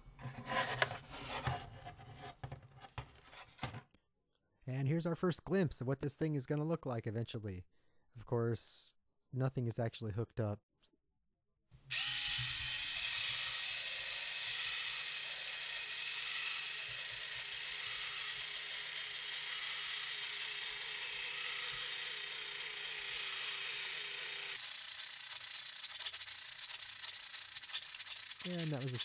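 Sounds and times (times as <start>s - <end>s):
servo motor straining: 11.9s - 29.0s
irregular clicks: 24.6s - 29.0s.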